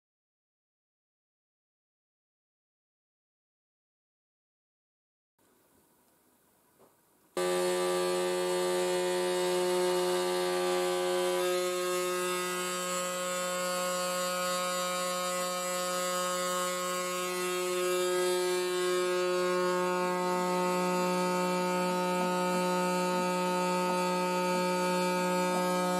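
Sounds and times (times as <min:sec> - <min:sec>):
router spindle motor humming: 0:07.4 - 0:25.9
spindle whine: 0:07.4 - 0:25.9.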